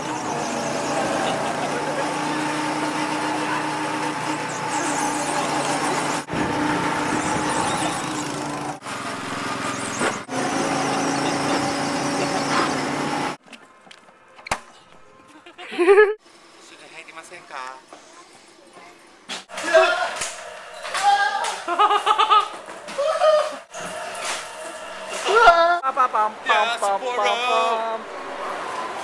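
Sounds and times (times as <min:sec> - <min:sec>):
go-kart engine running: 0:00.0 - 0:13.4.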